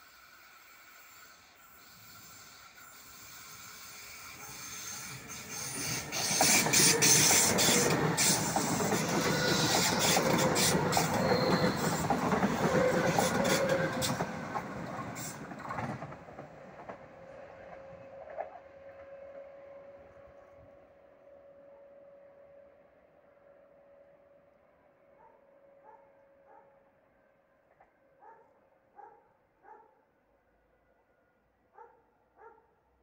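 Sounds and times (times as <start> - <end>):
train wheels on rails: 0.0 - 20.4.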